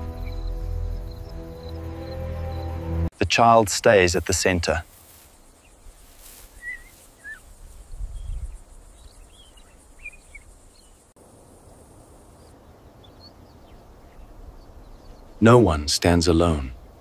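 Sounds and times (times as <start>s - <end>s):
bird chirps: 0.0s - 2.7s, 5.4s - 11.1s, 12.4s - 15.4s.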